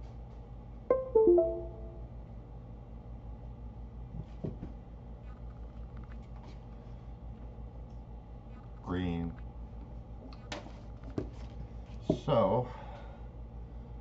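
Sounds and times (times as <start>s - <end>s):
computer device chime: 0.9s - 2.0s.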